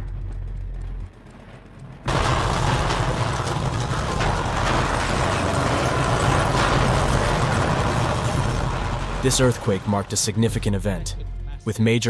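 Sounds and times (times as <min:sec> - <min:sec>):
earthquake rumble: 0:00.0 - 0:11.6
objects clattering and rattling: 0:02.1 - 0:11.2.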